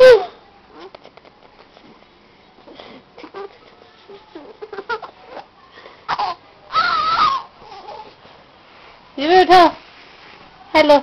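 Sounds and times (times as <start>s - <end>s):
baby small sounds: 2.7s - 8.2s
baby crying: 6.1s - 8.2s.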